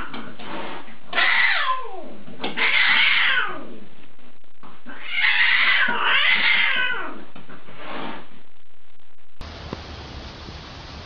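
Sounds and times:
cat yowling: 1.1 - 3.7, 4.9 - 7.2.

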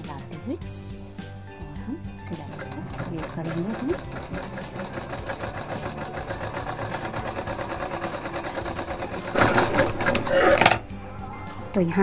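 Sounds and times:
sewing machine running: 2.3 - 10.7.

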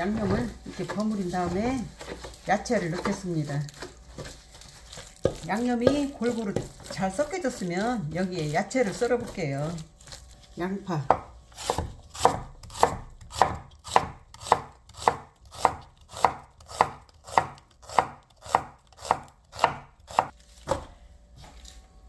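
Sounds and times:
knife chopping on wooden board: 5.0 - 7.0, 11.0 - 20.9.

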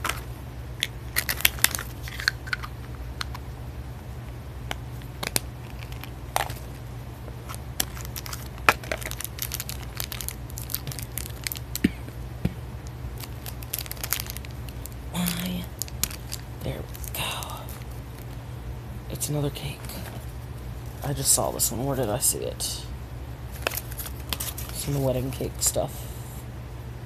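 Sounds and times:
steady low hum: 0.0 - 27.0
foil packaging crinkling and tearing: 1.1 - 2.6, 5.1 - 6.8, 7.4 - 12.0, 13.2 - 18.4, 23.5 - 25.3.

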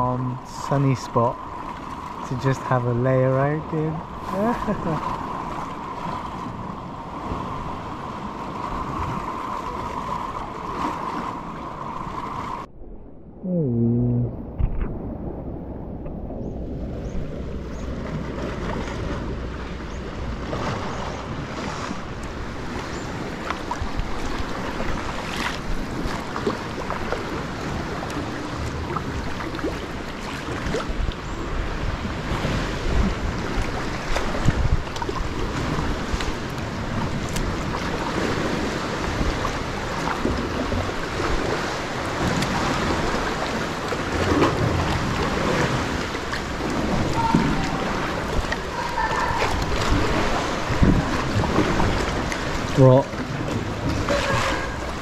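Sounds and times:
water lapping and splashing: 0.0 - 12.7, 14.6 - 55.0
wind noise on microphone: 5.9 - 28.0, 30.6 - 46.0, 46.7 - 52.6
paddle strokes: 17.2 - 31.2, 32.2 - 55.0.

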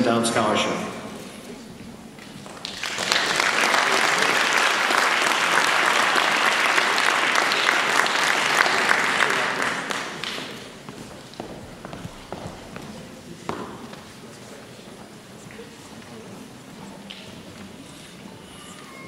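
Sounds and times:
audience applauding: 2.3 - 11.4.

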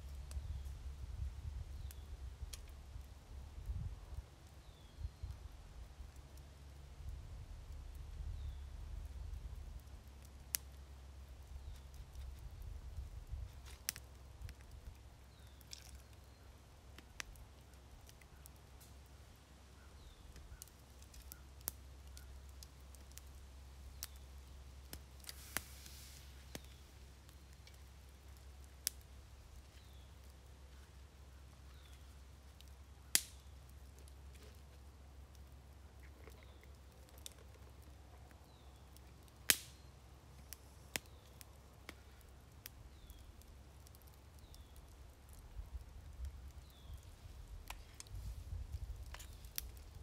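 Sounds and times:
campfire clicks and pops: 0.0 - 0.8, 1.4 - 19.2, 19.8 - 50.0
low steady rumble: 0.0 - 15.2
rustle: 0.0 - 50.0.

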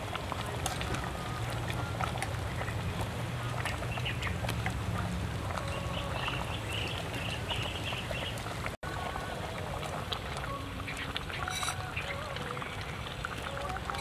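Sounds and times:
liquid sloshing: 0.0 - 14.0
birds chirping: 3.7 - 4.5, 5.6 - 8.5
metal ladle stirring soup: 11.1 - 12.2.

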